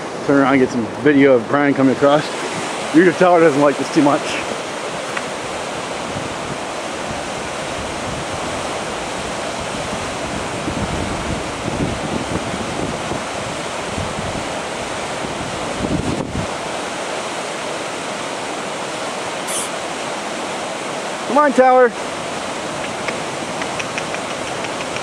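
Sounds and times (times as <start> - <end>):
stream rushing over rocks: 0.0 - 25.0.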